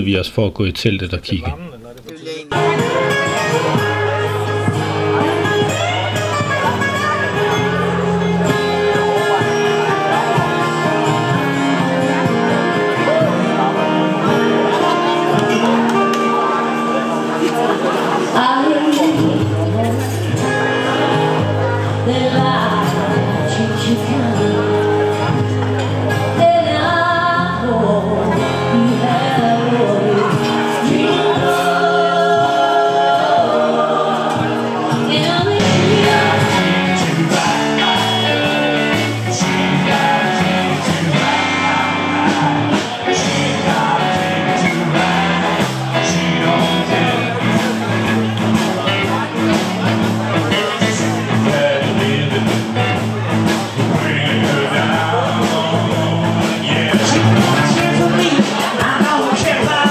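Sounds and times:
live rock and roll band: 2.5s - 59.9s
person singing: 7.4s - 25.4s, 26.2s - 49.2s, 50.4s - 59.9s.

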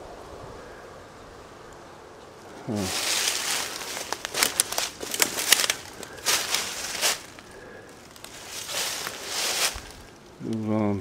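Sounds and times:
footsteps through dry leaves: 2.7s - 10.2s.

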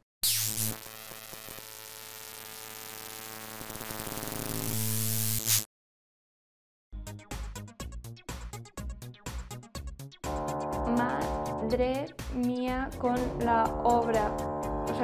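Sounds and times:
synthesizer drone with rattling buzz: 10.3s - 11.8s, 12.8s - 15.0s.

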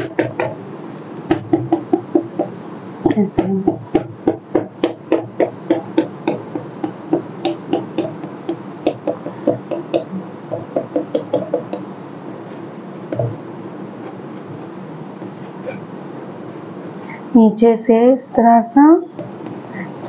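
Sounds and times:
chalk tapping on blackboard: 0.0s - 0.6s, 1.3s - 11.9s.

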